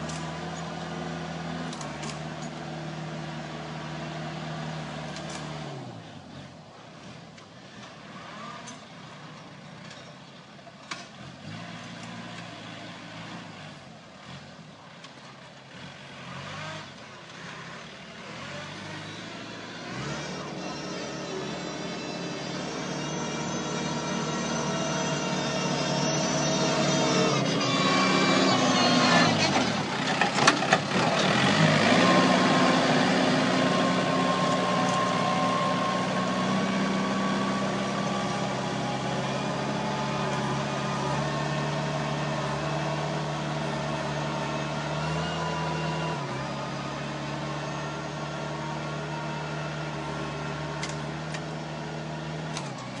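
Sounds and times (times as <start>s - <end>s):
tractor engine under load: 0.0s - 53.0s.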